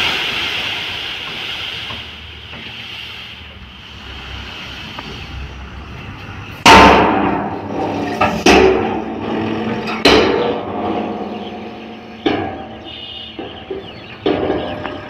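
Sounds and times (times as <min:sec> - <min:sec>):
truck engine running: 0:03.4 - 0:15.0
steel tailgate clanging: 0:06.6 - 0:15.0.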